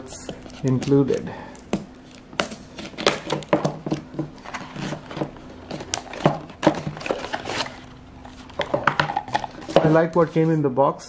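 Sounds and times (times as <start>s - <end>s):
faint steady hum: 0.0s - 11.0s
packaging sliding and scraping: 4.4s - 10.5s.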